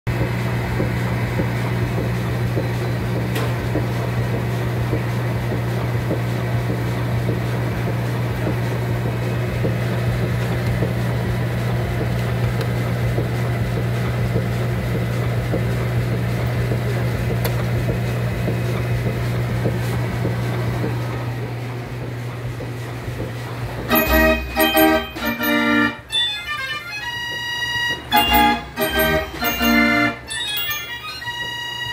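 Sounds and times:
electric blower humming: 23.9 - 31.9.

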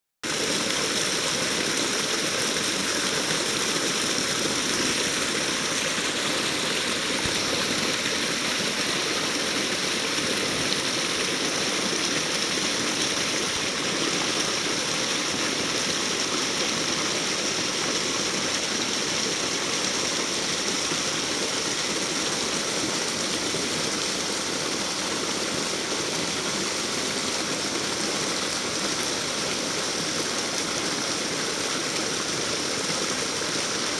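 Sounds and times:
creek water flowing and splashing: 0.2 - 33.9.

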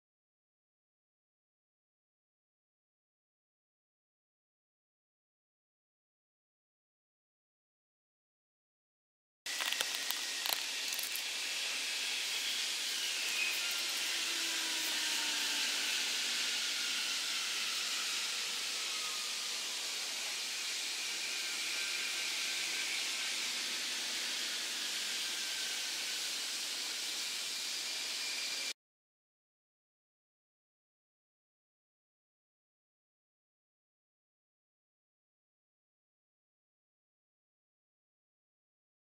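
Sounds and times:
burning plastic hissing: 9.5 - 14.2
faint whistling tones: 11.4 - 28.7.

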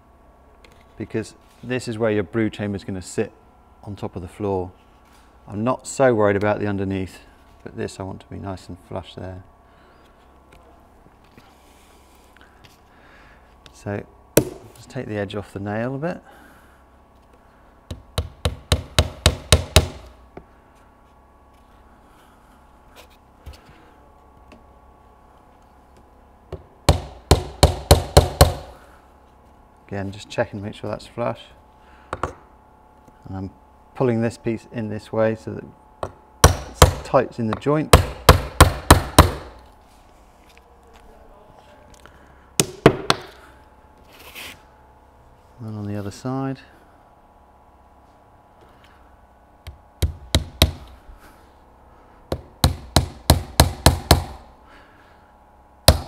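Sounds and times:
hammer tapping nail into wood: 17.9 - 20.1, 26.5 - 28.7, 52.3 - 54.4.

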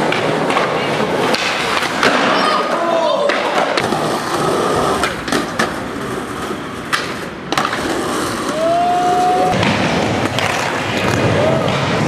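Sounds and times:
skateboard clacking on ground: 0.0 - 8.7
skateboard wheels rolling: 0.0 - 12.0.

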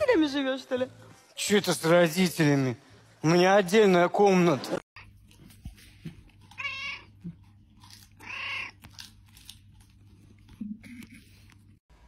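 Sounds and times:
cat meowing: 6.5 - 7.3, 8.2 - 8.9.

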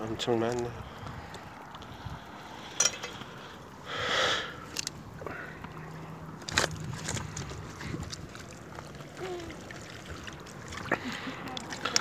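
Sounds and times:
seawater washing over rocks: 6.4 - 12.0.

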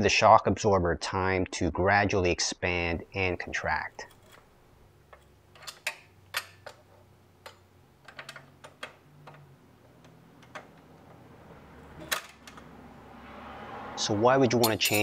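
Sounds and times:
metal spanner clicking: 5.1 - 11.2, 14.6 - 15.0.

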